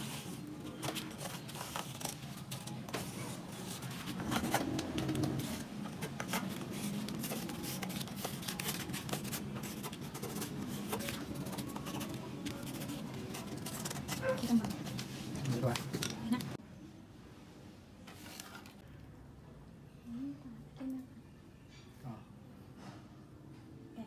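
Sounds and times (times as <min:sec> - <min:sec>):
cardboard rubbing: 0:00.0 - 0:15.9.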